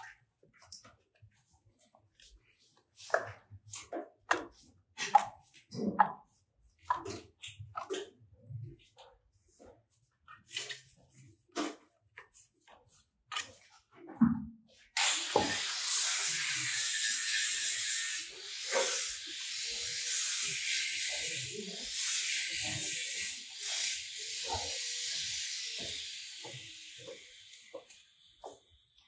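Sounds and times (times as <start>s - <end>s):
plastering tools tapping: 0.0s - 14.6s.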